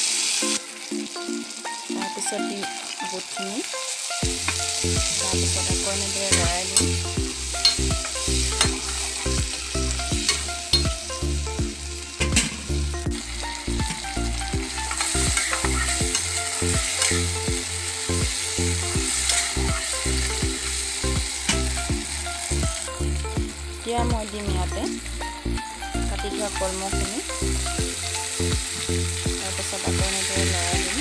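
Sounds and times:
potatoes sizzling in oil: 0.0s - 31.0s
low pulsing hum: 5.0s - 28.7s.

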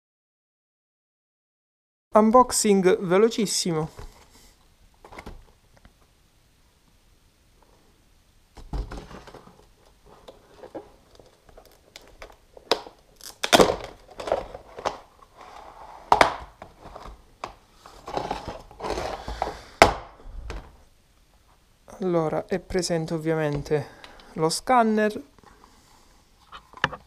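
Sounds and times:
plastic packaging crinkling: 8.8s - 19.6s.

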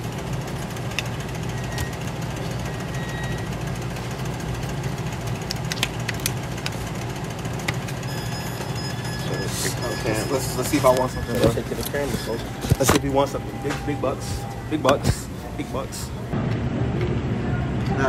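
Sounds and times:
steady low hum: 0.0s - 18.0s
coin scraping scratch-off ticket: 8.0s - 15.8s.

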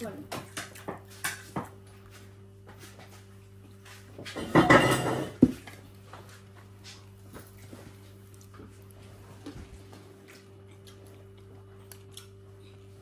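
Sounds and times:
dishes clattering: 4.2s - 5.6s.

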